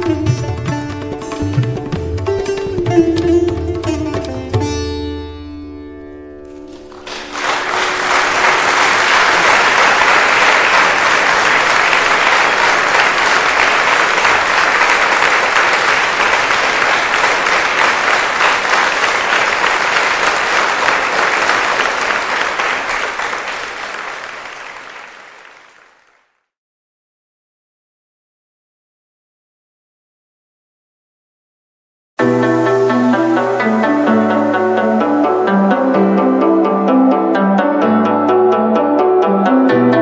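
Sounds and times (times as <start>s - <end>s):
audience applause: 6.7s - 26.4s.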